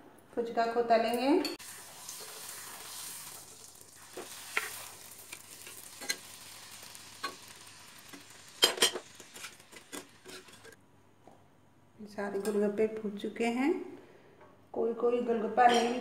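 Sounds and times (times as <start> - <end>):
dough sizzling in hot oil: 1.6 - 10.8.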